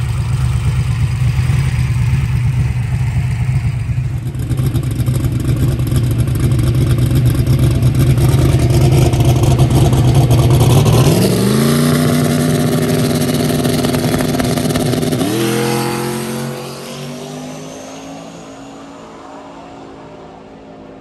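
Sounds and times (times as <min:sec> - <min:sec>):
drag car engine revving: 0:00.0 - 0:20.5
thin high whine: 0:15.4 - 0:20.7.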